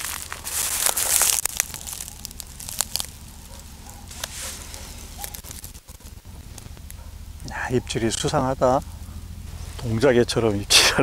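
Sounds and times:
rustling and crinkling: 0:00.0 - 0:07.2
sharp clicks and crackles: 0:00.0 - 0:07.6.

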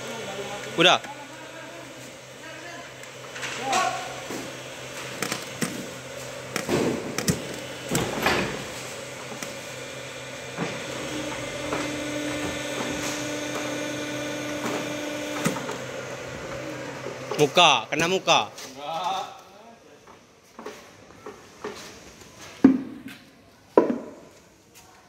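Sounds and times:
high steady machine tone: 0:00.0 - 0:18.9
factory machinery humming: 0:00.0 - 0:19.6.

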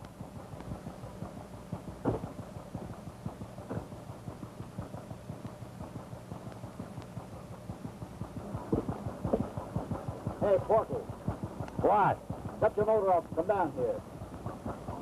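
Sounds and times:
boat motor chugging: 0:00.0 - 0:15.0
loud knocks: 0:02.0 - 0:02.3, 0:08.7 - 0:09.5.

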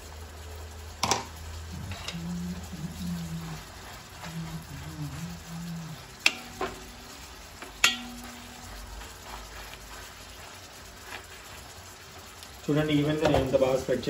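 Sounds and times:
fish sizzling in oil: 0:00.0 - 0:14.0
wooden spatula scraping pan: 0:01.7 - 0:12.4
spatula knocking against pan: 0:07.8 - 0:08.7.

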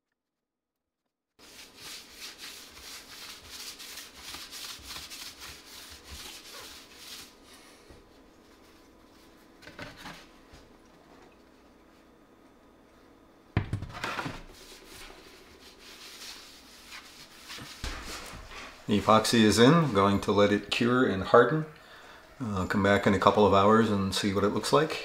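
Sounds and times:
cloth wiping a countertop: 0:01.4 - 0:10.4, 0:14.2 - 0:21.6.

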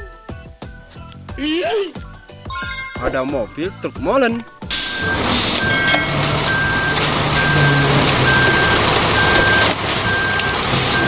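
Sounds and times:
truck reversing alarm beeping: 0:04.7 - 0:11.0
truck working noise: 0:04.7 - 0:11.0.

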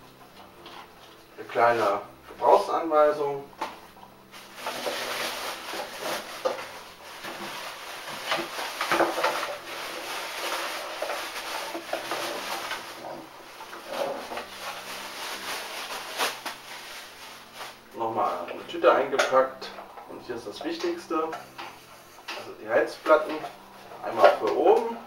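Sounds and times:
plastic bag crinkling: 0:04.3 - 0:18.5.

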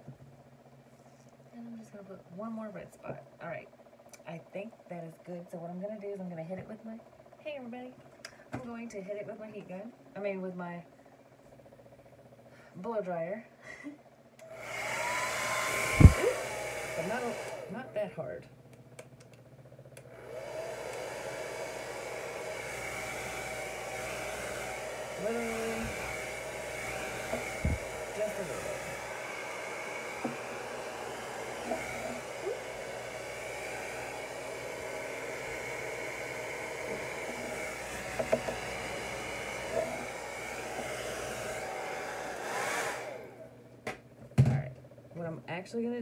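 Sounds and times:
blow dryer blowing: 0:14.4 - 0:18.4, 0:20.0 - 0:43.8.

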